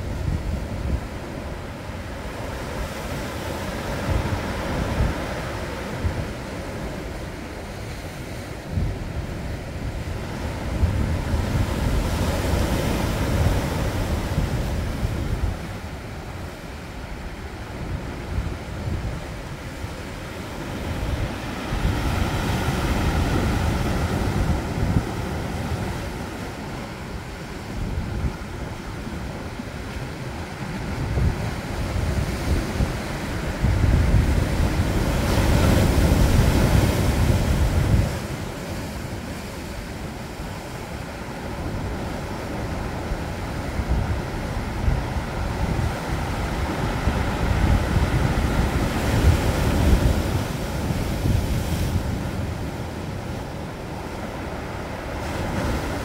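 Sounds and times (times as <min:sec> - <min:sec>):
waves breaking on rocky shore: 0:00.0 - 0:56.0
wind buffeting microphone: 0:00.0 - 0:56.0.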